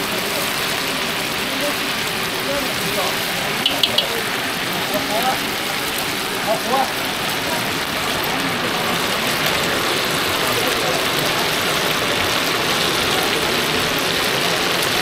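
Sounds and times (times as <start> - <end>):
tofu sizzling in hot oil: 0.0 - 15.0.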